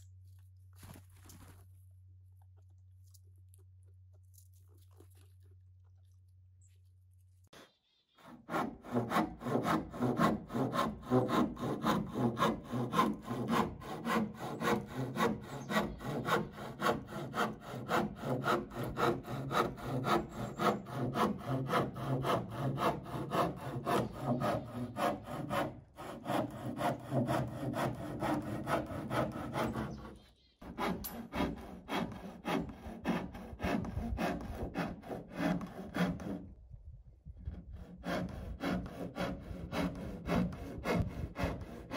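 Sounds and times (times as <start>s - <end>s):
hand saw cutting wood: 8.1s - 36.6s, 37.4s - 41.9s.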